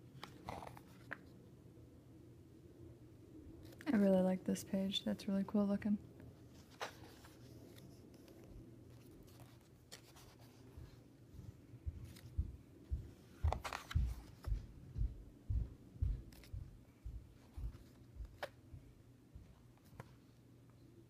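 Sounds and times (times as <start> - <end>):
book pages turning: 0.0 - 1.3, 6.4 - 11.1, 13.3 - 14.6, 16.3 - 16.6, 17.4 - 18.6.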